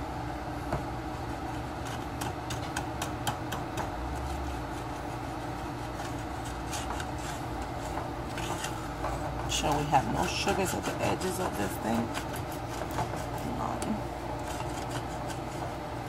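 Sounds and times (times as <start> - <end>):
wooden spoon scraping saucepan: 4.0 - 16.0.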